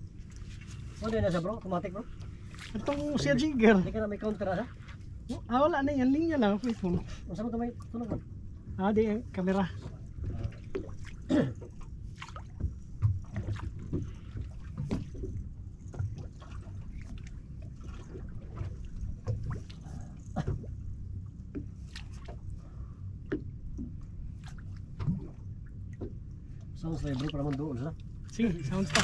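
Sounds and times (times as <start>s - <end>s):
water slapping against boat hull: 0.0s - 22.6s, 23.2s - 29.0s
steady low rumble: 0.0s - 29.0s.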